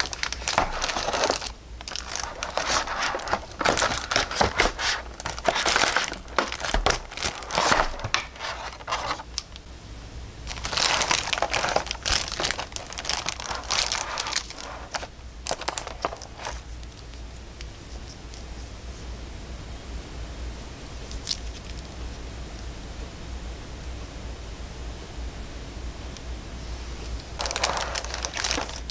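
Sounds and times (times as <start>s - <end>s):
plastic bag crinkling: 0.0s - 9.6s, 10.5s - 17.0s, 27.4s - 28.9s.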